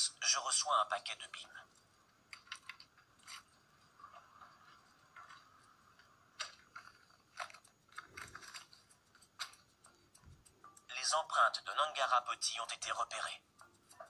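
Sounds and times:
paper packaging crinkling: 0:02.3 - 0:09.8.

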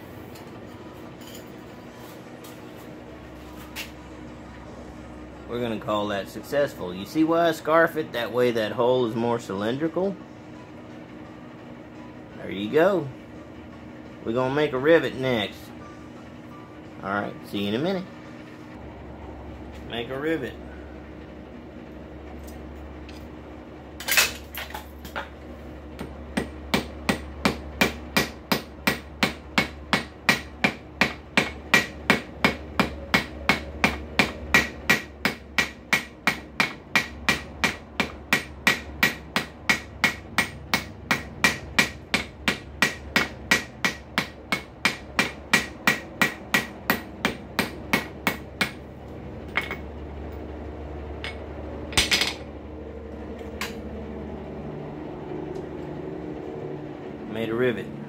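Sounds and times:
hammer striking steel: 0:26.0 - 0:48.8.

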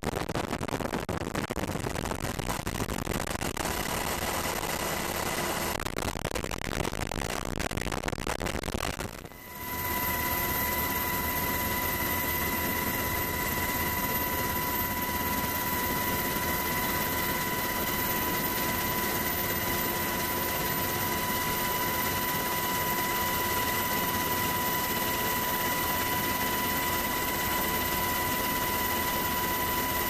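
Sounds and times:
high whine: 0:03.4 - 0:05.8, 0:09.2 - 0:30.0
helicopter roar: 0:03.7 - 0:05.7, 0:09.4 - 0:30.0.

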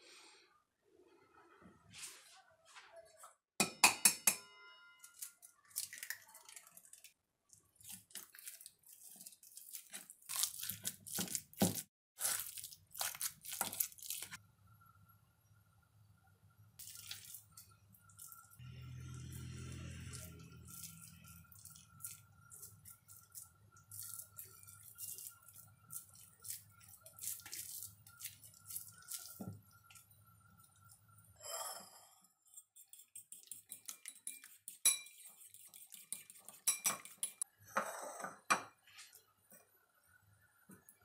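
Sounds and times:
dishes clinking on stone counter: 0:03.6 - 0:04.7, 0:33.7 - 0:35.3, 0:36.2 - 0:38.8
hands squishing food mixture: 0:05.5 - 0:14.4, 0:16.8 - 0:18.6, 0:19.4 - 0:31.1.

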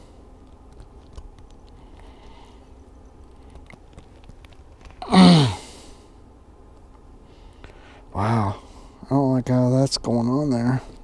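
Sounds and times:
man groaning: 0:05.0 - 0:05.6.

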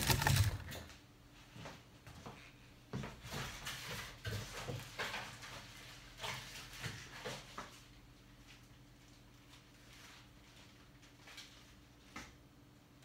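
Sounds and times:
hands rustling laptop parts: 0:00.0 - 0:00.8.

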